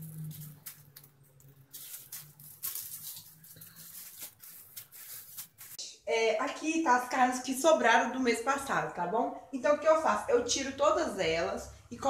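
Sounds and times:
plastic bags rustling and crinkling: 0.0s - 5.8s.

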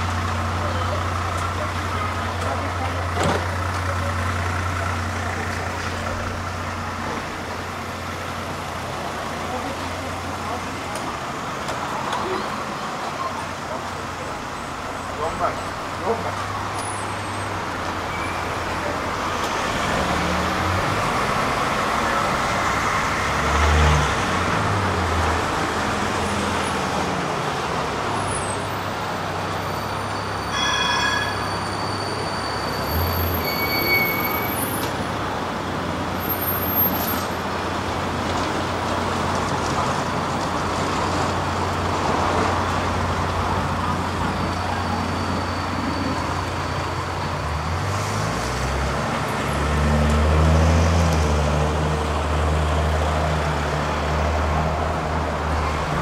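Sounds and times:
cars and trams passing: 0.0s - 56.0s
short pitched ring: 30.4s - 32.7s.

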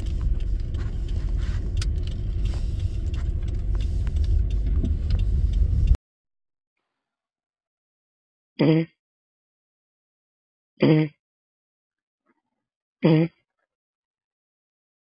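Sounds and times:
car engine idling: 0.0s - 6.0s.

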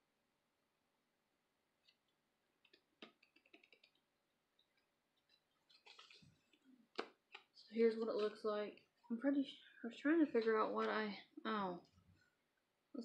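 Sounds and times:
blister pack crinkling: 5.2s - 7.4s.

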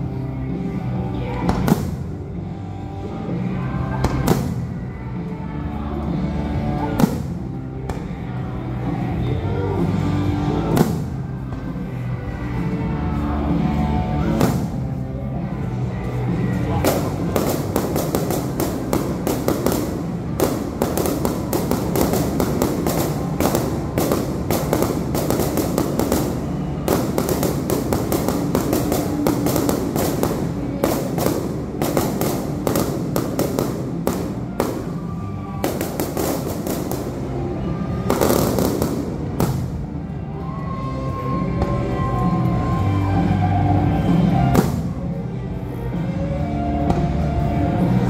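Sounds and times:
fireworks booming and crackling: 1.5s - 2.3s, 4.1s - 4.8s, 7.0s - 8.1s, 10.7s - 11.7s, 14.2s - 15.0s, 16.7s - 40.2s, 44.3s - 45.2s.

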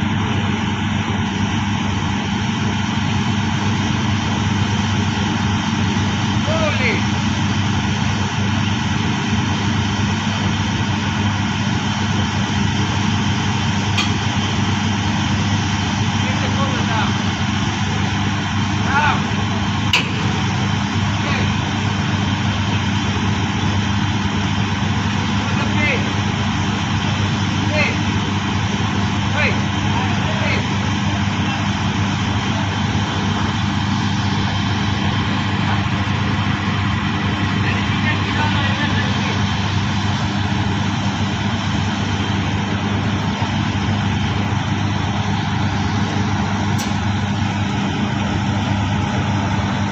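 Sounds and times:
drilling rig droning: 0.0s - 49.9s.

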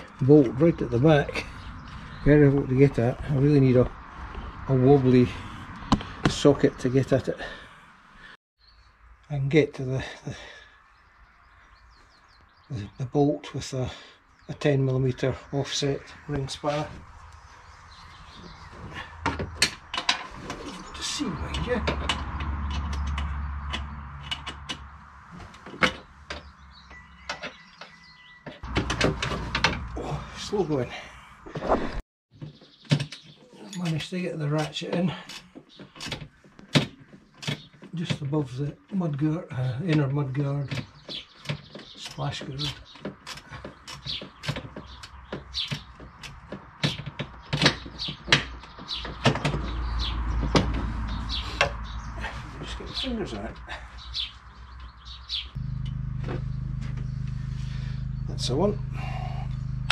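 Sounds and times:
hand tool clicking on bolt: 41.4s - 48.6s.

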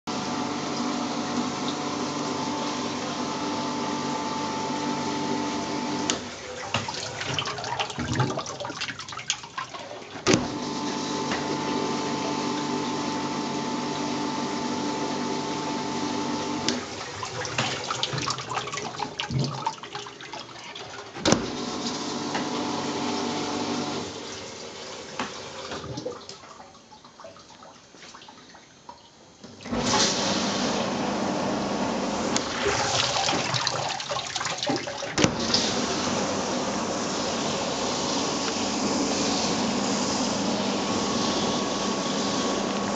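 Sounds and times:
dishwasher pump hum: 0.1s - 27.6s, 28.5s - 42.9s
water spraying: 32.4s - 42.9s.

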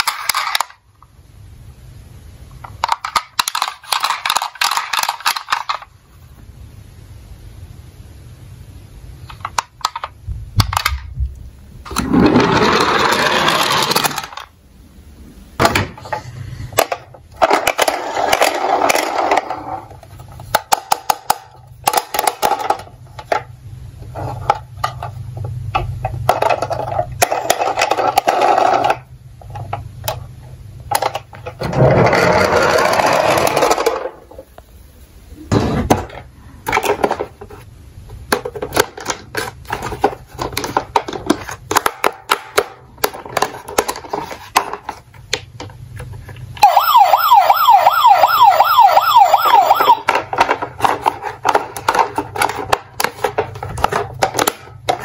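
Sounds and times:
plastic toy cars knocking: 2.6s - 5.9s, 11.9s - 14.5s, 16.8s - 23.5s, 25.8s - 30.2s, 30.9s - 34.2s, 38.3s - 46.1s, 49.8s - 55.0s.

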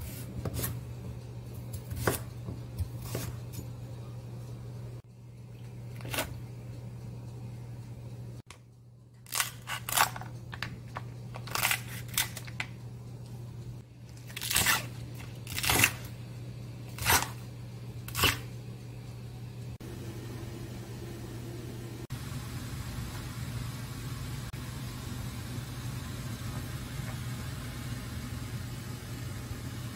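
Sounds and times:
knife chopping on wooden board: 1.9s - 3.4s.

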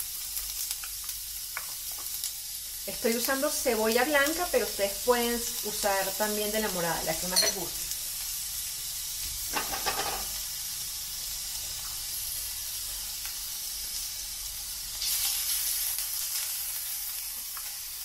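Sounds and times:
onion sizzling in oil: 0.0s - 18.0s.

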